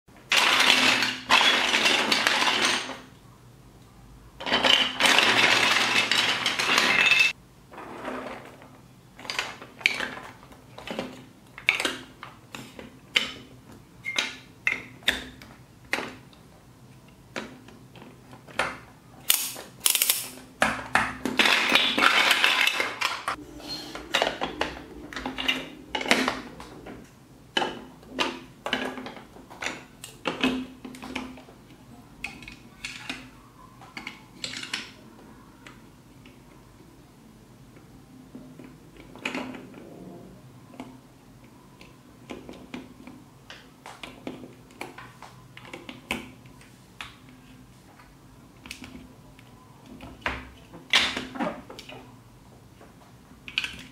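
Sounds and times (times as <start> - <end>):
plastic building blocks clattering: 0.2 - 3.1, 4.4 - 13.5, 17.3 - 23.4, 24.0 - 35.0.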